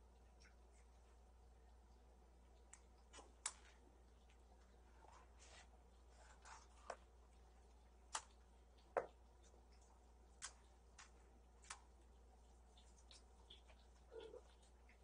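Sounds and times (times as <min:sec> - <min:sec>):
faint clicks and light taps: 0:00.0 - 0:15.0.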